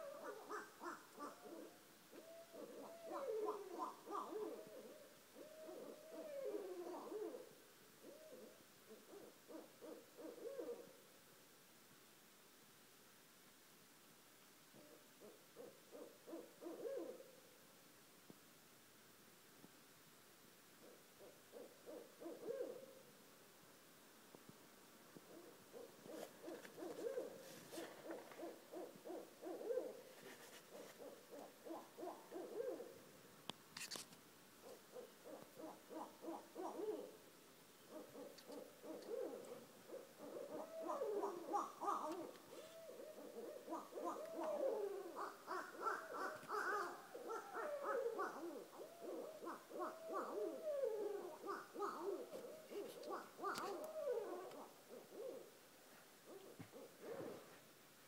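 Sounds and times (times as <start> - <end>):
owls hooting: 0.0 - 10.9, 14.8 - 17.2, 20.8 - 23.0, 25.3 - 30.0, 30.7 - 33.0, 34.6 - 37.2, 37.9 - 55.5.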